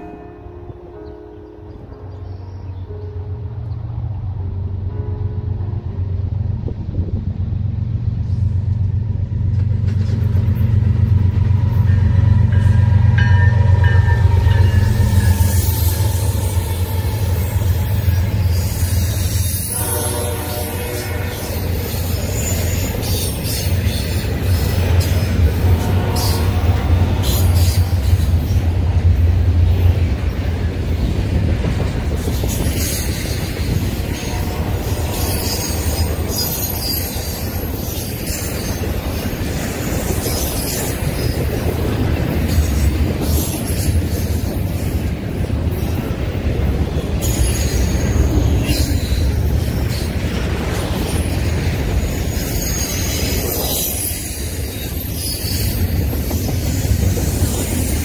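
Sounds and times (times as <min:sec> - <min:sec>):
rumble of train wheels on rail: 0:00.0 - 0:58.0
high-pitched wheel squeal: 0:13.9 - 0:20.2, 0:32.3 - 0:38.9, 0:52.0 - 0:58.0.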